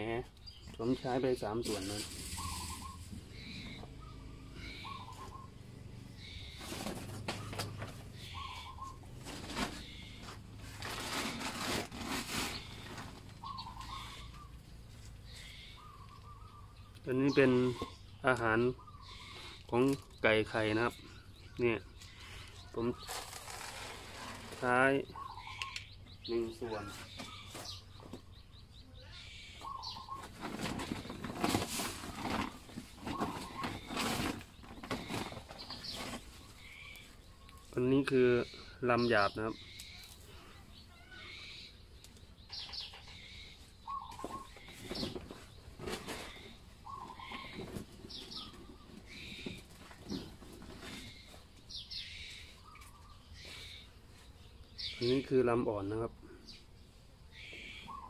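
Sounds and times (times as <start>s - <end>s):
rustling noise: 1.6s - 3.5s, 6.5s - 14.2s, 22.2s - 24.9s, 30.2s - 37.2s, 44.1s - 51.8s
bird call: 1.7s - 10.4s, 12.4s - 14.6s, 20.9s - 28.2s, 28.8s - 41.8s, 42.4s - 55.3s, 57.3s - 58.0s.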